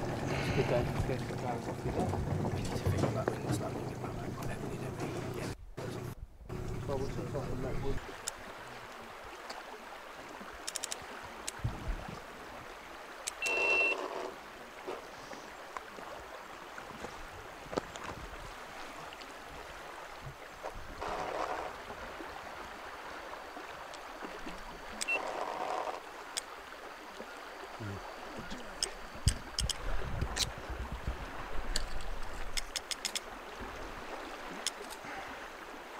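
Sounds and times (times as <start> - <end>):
light clicks: 31.7 - 33.3.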